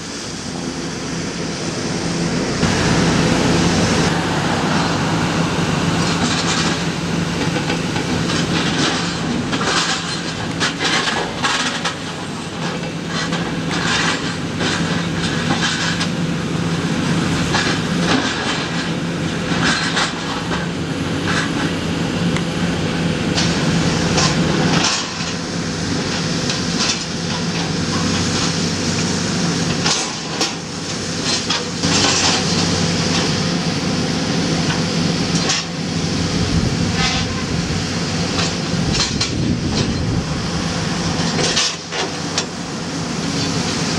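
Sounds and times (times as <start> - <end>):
excavator diesel engine running: 0.0 - 43.9
metal clanks and crunches: 31.2 - 33.4, 38.3 - 40.2, 41.2 - 42.6.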